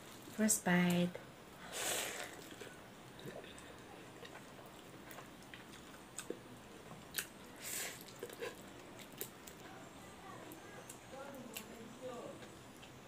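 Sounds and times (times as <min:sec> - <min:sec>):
person chewing food: 0:01.9 - 0:09.7.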